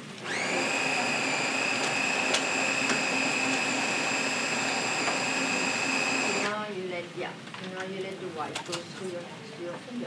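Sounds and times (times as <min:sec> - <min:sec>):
electric motor whining: 0:00.2 - 0:06.6.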